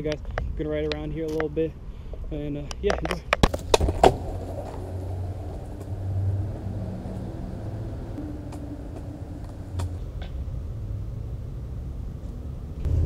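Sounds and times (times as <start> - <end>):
longboard wheels rolling on asphalt: 3.3 - 13.0.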